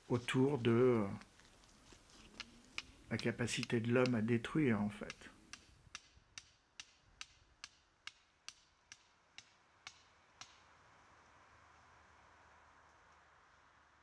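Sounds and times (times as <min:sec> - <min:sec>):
regular sharp ticking: 0:00.0 - 0:10.6.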